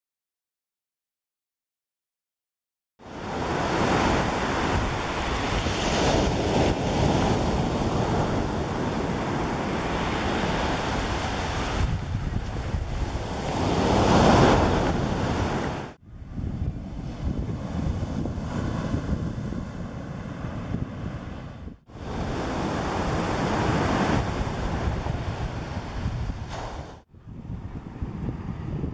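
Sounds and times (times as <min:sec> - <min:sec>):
wind buffeting microphone: 0:03.1 - 0:28.9.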